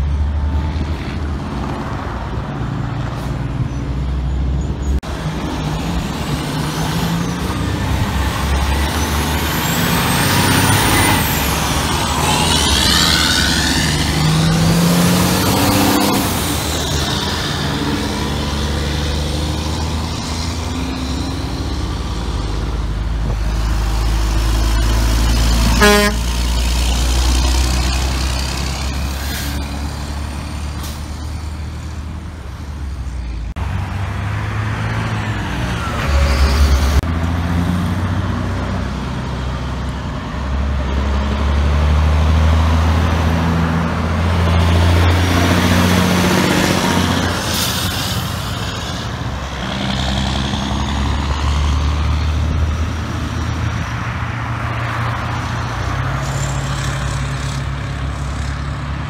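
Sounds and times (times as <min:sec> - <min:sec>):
diesel dump trucks passing: 0:00.0 - 0:59.0
short horn toot: 0:25.7 - 0:26.3.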